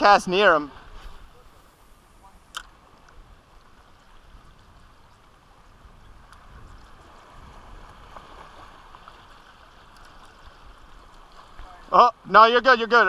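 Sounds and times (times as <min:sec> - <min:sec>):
small waves lapping: 0:00.0 - 0:13.0
wind rumble on microphone: 0:03.1 - 0:09.4.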